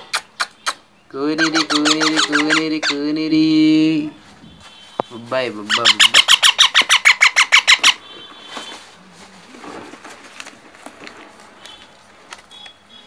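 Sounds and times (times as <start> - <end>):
parrot chick squawking: 0.0 - 3.2, 5.6 - 8.3.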